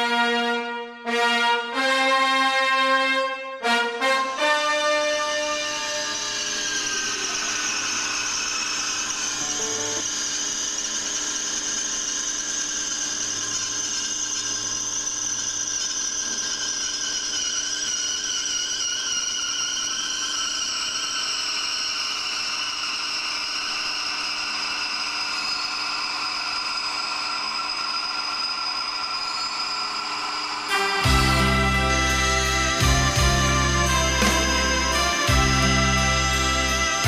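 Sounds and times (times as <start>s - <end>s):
glass-cutting wheel grinding glass: 6.0s - 32.8s.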